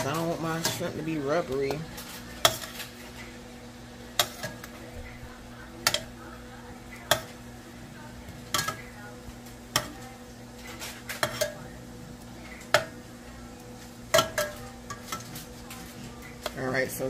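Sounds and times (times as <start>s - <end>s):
metal tongs clinking on pot: 0.0s - 3.4s, 4.1s - 6.3s, 6.9s - 7.6s, 8.3s - 11.8s, 12.4s - 13.1s, 13.8s - 17.0s
steady low hum: 0.0s - 17.0s.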